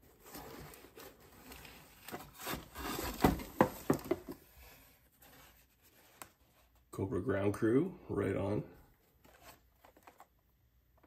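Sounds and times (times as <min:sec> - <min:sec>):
cardboard scraping and knocking: 0:00.1 - 0:06.2.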